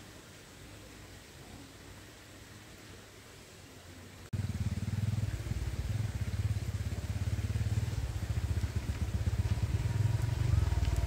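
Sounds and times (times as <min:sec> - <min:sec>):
engine running steadily: 0:04.3 - 0:11.0.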